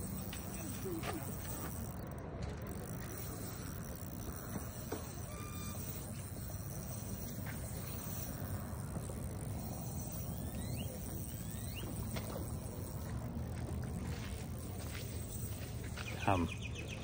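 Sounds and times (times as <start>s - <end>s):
short rising chirps: 3.2s - 12.7s.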